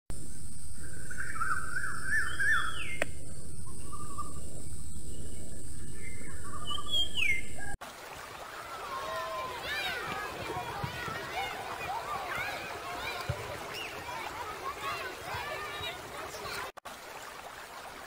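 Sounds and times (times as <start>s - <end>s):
birds chirping and whistling: 0.7s - 7.8s
low rumble: 3.1s - 7.8s.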